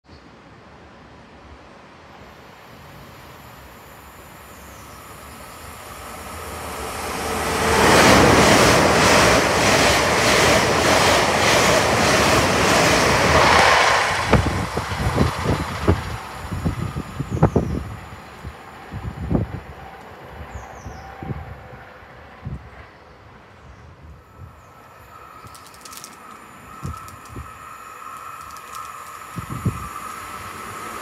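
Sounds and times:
train rumbling past: 0.3s - 31.0s
train wheels beating on rails: 5.6s - 20.1s, 24.8s - 31.0s.

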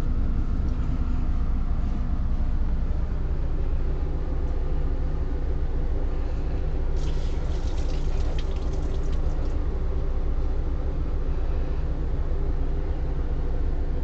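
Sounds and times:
low machine hum: 0.0s - 14.0s
water dripping into tub: 7.0s - 9.6s.

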